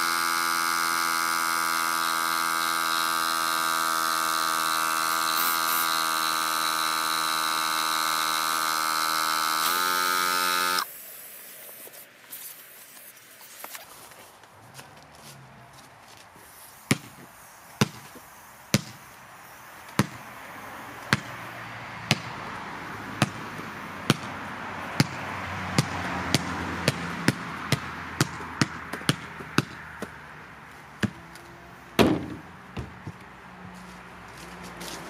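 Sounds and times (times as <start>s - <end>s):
ball bouncing on concrete: 16.9s - 19.0s, 19.9s - 20.3s, 21.0s - 21.4s, 22.0s - 22.4s, 23.1s - 24.4s, 25.0s - 30.3s, 31.0s - 33.4s.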